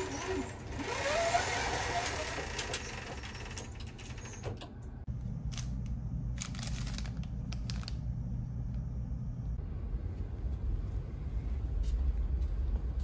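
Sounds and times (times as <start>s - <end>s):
low steady hum: 4.3s - 13.0s
plastic packet crinkling: 6.4s - 8.1s.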